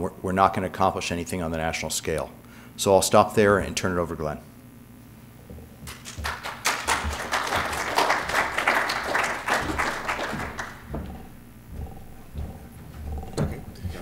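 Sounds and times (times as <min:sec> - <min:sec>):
audience applauding: 0:05.9 - 0:11.2.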